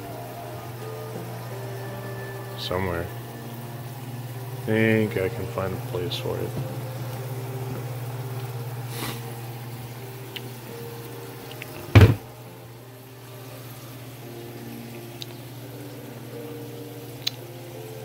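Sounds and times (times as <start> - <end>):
low kitchen hum: 0.0 - 18.0
loud knock: 12.0 - 12.2.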